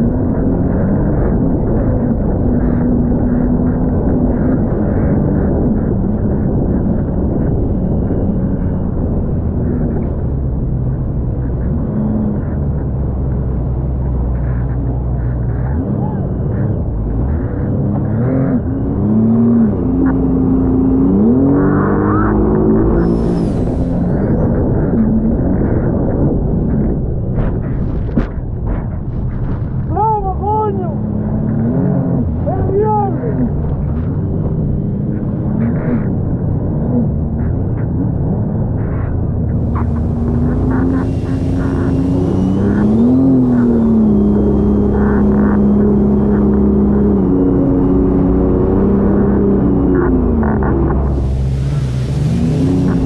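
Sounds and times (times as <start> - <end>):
jet ski engine revving: 39.6 - 53.0
rush of spray and wind: 51.1 - 53.0.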